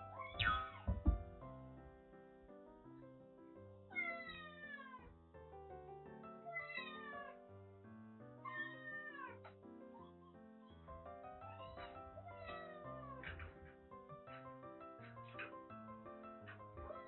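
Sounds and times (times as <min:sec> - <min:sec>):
kitten meowing: 0:00.1 - 0:00.9, 0:03.9 - 0:05.1, 0:06.5 - 0:07.4, 0:08.4 - 0:09.4, 0:12.2 - 0:13.6, 0:16.8 - 0:17.0.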